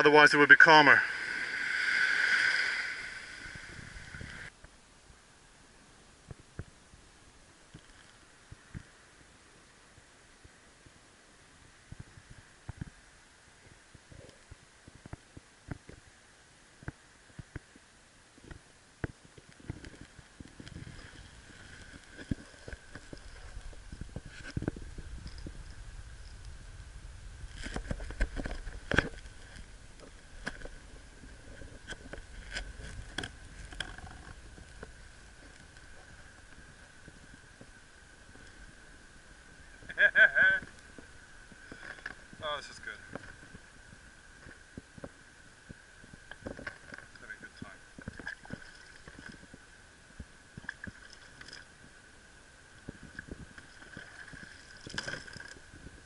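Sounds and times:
water splashing against kayak hull: 0.0s - 4.6s, 18.4s - 26.6s, 43.0s - 52.0s, 52.8s - 56.0s.

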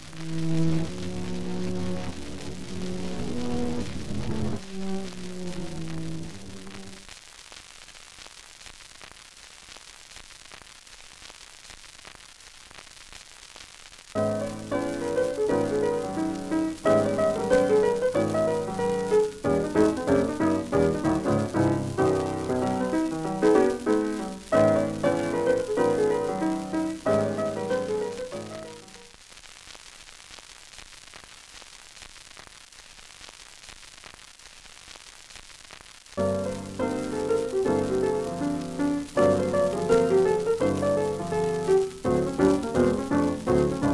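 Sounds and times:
static hiss with crackles: 0.0s - 43.9s
solo piano music: 14.2s - 29.0s, 36.2s - 43.9s.

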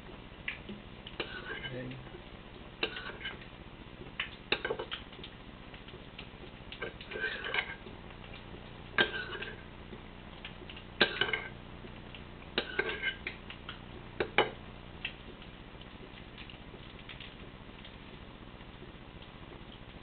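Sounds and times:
utensil scraping metal baking pan: 1.2s - 1.8s, 6.8s - 7.8s, 9.0s - 9.6s.

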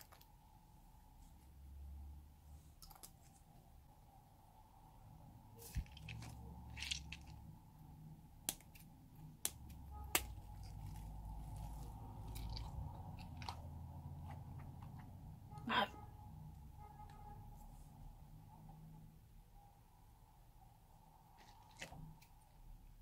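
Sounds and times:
handling noise: 5.6s - 7.4s.

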